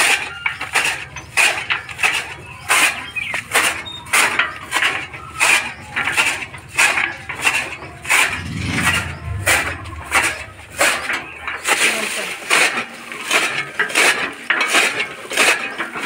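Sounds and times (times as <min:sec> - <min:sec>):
chaff cutter blades chopping: 0:00.0 - 0:16.0.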